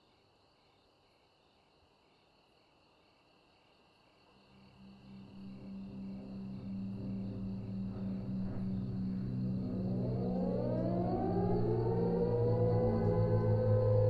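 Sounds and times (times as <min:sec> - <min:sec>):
crickets chirping: 0:00.0 - 0:14.0
propeller bombers droning: 0:04.7 - 0:14.0.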